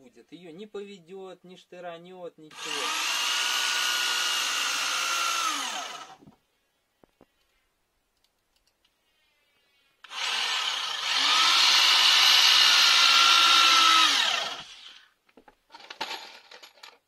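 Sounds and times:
electric drill driving screw: 2.5s - 6.2s, 10.0s - 15.1s
small clicks: 7.0s - 9.0s.

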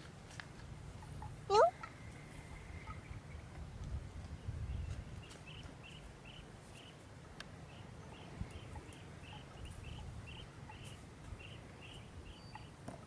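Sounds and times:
wind rumble on microphone: 2.4s - 6.2s, 8.0s - 12.4s.

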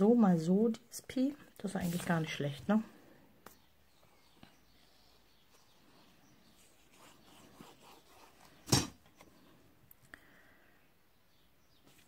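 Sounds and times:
paper rustling: 1.7s - 2.4s.

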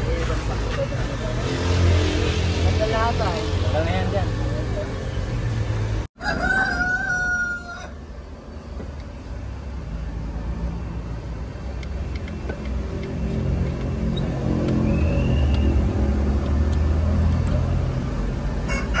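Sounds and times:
rooster crowing: 6.2s - 8.0s, 18.6s - 19.0s.

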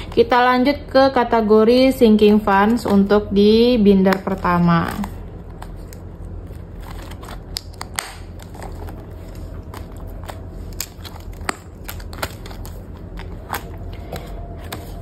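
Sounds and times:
plastic binder clicks and crinkles: 4.1s - 15.0s
pages flipping: 4.9s - 15.0s.

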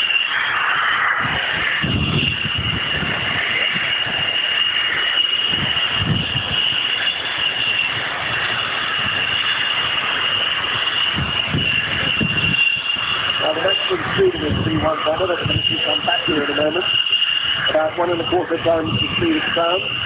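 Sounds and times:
jet engine high whine: 0.0s - 20.0s
jet rushing noise: 0.0s - 20.0s.

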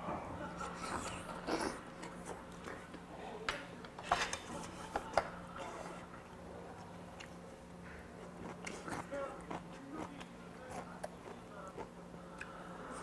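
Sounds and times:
faint steady hum: 0.0s - 13.0s
person chewing food: 6.7s - 13.0s.

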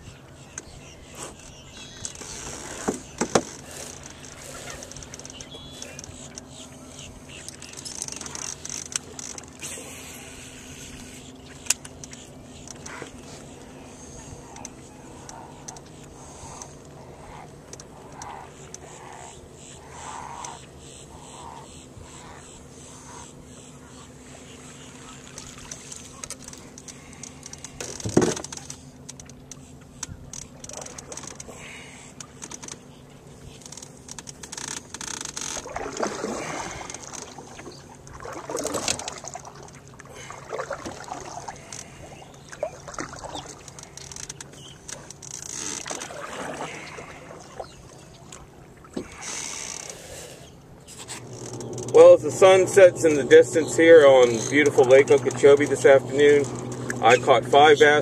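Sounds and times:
knocks on boat: 2.8s - 3.5s, 27.8s - 28.4s
water splashing and trickling: 24.2s - 29.4s, 33.6s - 49.9s.

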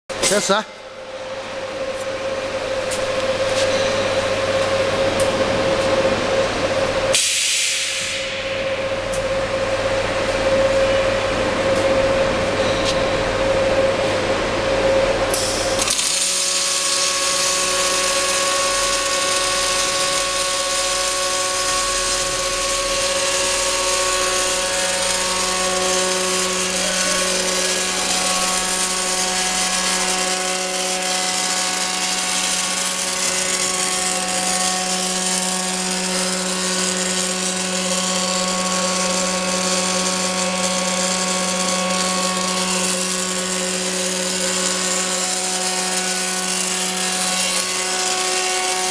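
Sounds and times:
machine hum: 0.1s - 48.9s
welding arc hiss: 7.1s - 8.4s, 15.3s - 48.9s.

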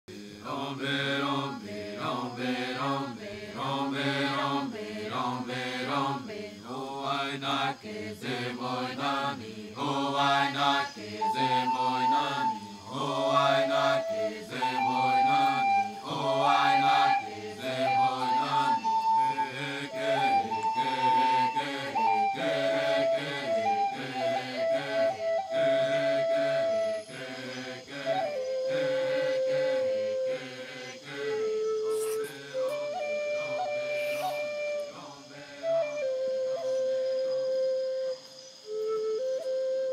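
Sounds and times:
low chanted singing: 0.1s - 37.8s
flute playing long notes: 9.8s - 39.9s.

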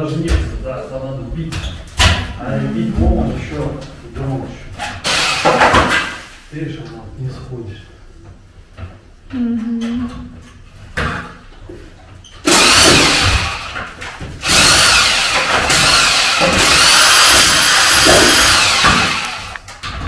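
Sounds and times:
rotary hammer running: 12.5s - 13.8s, 14.4s - 19.6s.

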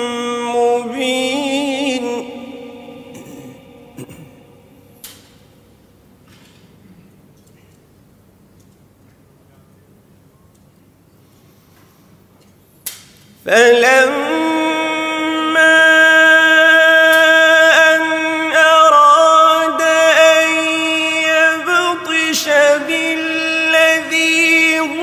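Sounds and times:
man chanting melodically: 0.0s - 4.9s, 13.5s - 25.0s.

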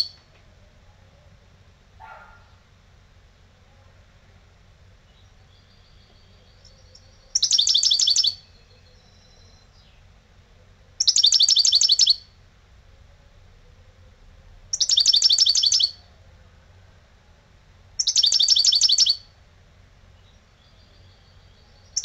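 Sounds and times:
finch twittering song: 5.1s - 10.2s, 11.0s - 12.3s, 14.7s - 16.1s, 18.0s - 19.3s, 20.1s - 22.0s.

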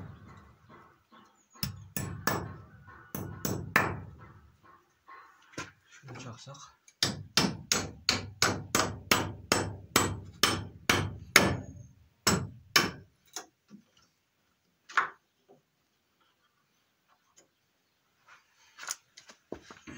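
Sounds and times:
hammer striking nail into wood: 1.6s - 4.3s, 7.0s - 13.1s.

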